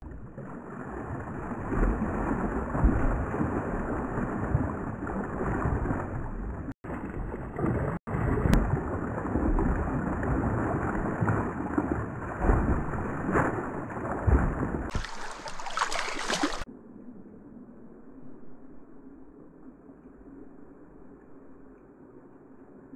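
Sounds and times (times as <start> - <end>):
low water murmur: 0.0 - 22.9
fish splashing in water: 0.4 - 16.7
hissy water rush: 14.9 - 16.7.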